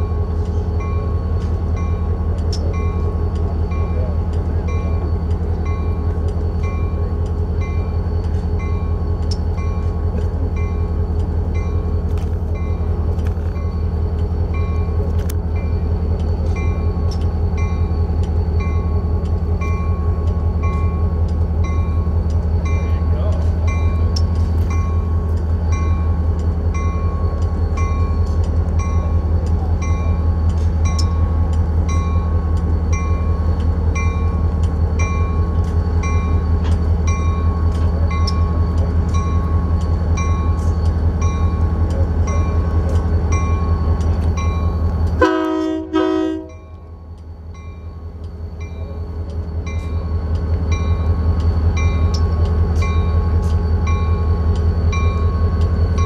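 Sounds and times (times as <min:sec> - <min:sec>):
diesel locomotive engine rumble: 0:00.0 - 0:56.0
locomotive bell ringing: 0:00.0 - 0:56.0
locomotive horn blast: 0:45.2 - 0:46.6.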